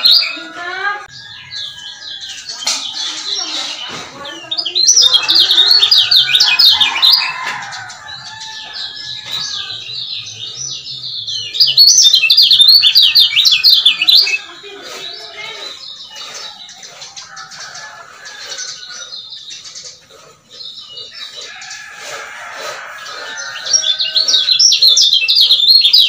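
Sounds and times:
bird chirping: 0.0 - 26.0.

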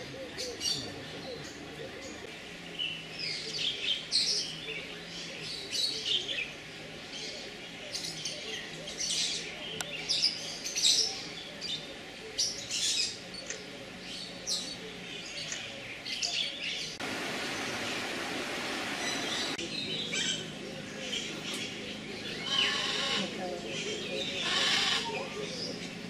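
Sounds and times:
birds chirping: 0.0 - 26.0
steady rushing noise: 17.0 - 19.6.

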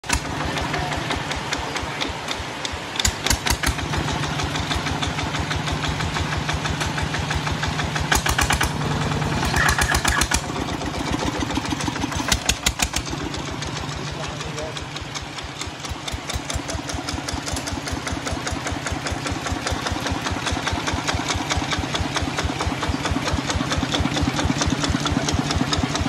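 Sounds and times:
diesel engine running: 0.0 - 26.0
sharp exhaust bangs: 0.0 - 26.0.

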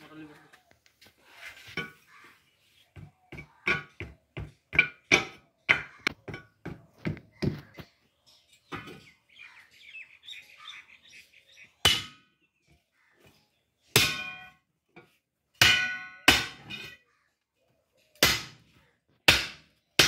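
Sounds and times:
hammer striking steel wheel rim: 15.6 - 16.9.

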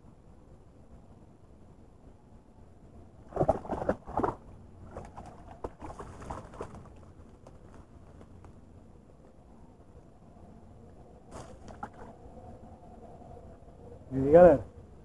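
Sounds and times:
fish splashing at water surface: 3.3 - 7.0.

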